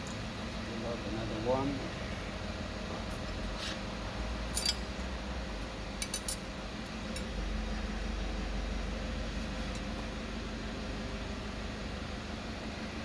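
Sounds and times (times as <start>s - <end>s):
steady low hum: 0.0s - 13.0s
metallic clinks of clutch plates: 4.5s - 4.9s, 6.0s - 6.4s.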